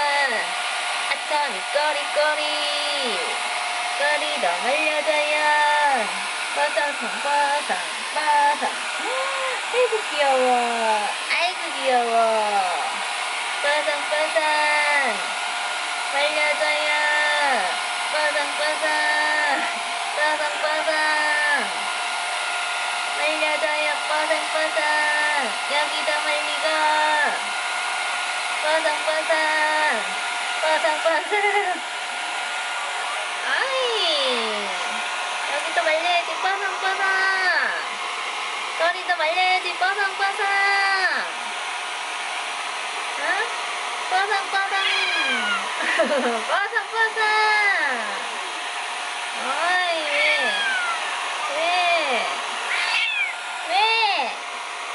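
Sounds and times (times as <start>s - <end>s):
hair dryer blowing: 0.0s - 54.9s
voice gliding up and down: 8.2s - 11.0s.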